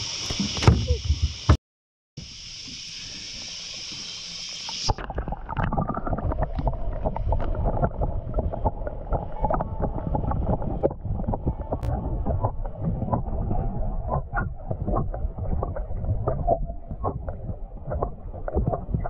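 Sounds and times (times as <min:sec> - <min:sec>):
steady high hiss: 0:02.2 - 0:05.0
underwater sloshing and bubbling: 0:02.4 - 0:19.0
small clicks and knocks underwater: 0:03.8 - 0:19.0.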